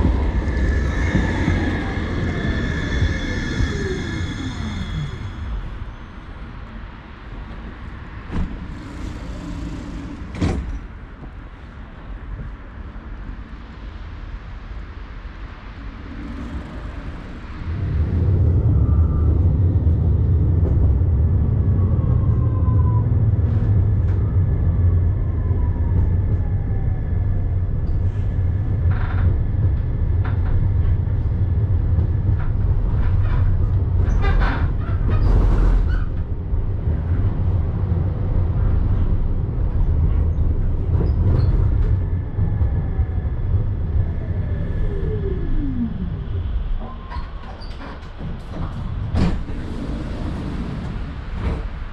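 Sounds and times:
tram motor whine: 0.0 - 12.5
tram rumble on rails: 0.0 - 51.9.

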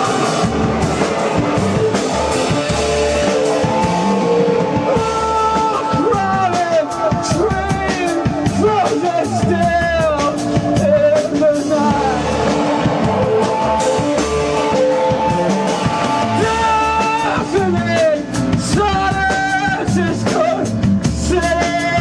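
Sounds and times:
bass guitar: 0.0 - 22.0
drum kit: 0.0 - 22.0
electric guitar: 0.0 - 22.0.

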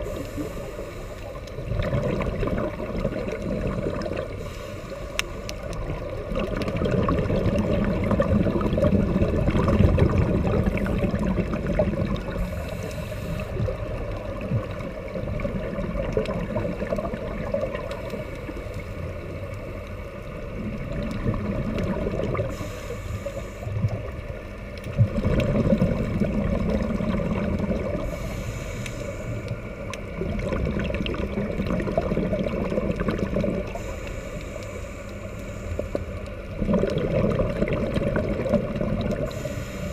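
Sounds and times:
regulator hiss on inhale: 0.0 - 1.7, 4.0 - 6.2, 10.4 - 14.3, 17.8 - 20.5, 22.3 - 24.8, 27.8 - 30.2, 33.4 - 36.6, 39.1 - 39.9
exhaled bubbles gurgling underwater: 0.0 - 39.9.

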